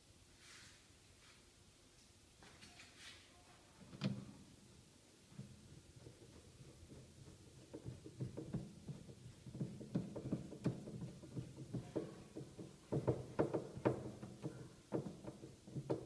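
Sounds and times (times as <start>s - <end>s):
hard plastic knocks and clicks: 5.4s - 16.0s.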